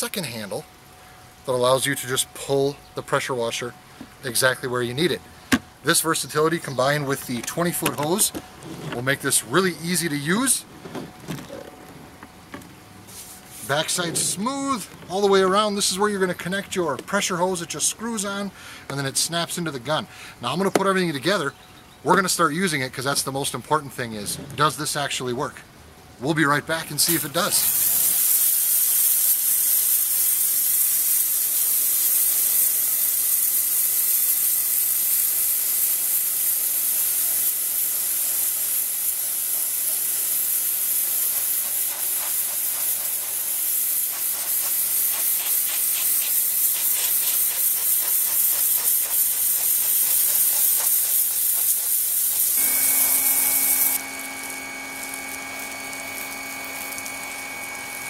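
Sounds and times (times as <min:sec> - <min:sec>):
pressure washer spraying water: 0:27.0 - 0:58.0
electric pump whine: 0:36.9 - 0:58.0.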